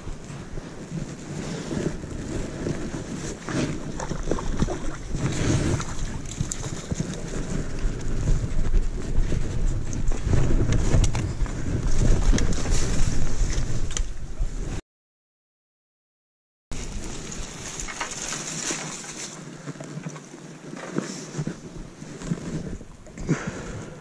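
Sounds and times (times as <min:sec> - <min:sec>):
rustling of plants and clothing: 0:00.0 - 0:14.8, 0:16.8 - 0:24.0
wind buffeting microphone: 0:00.0 - 0:14.8.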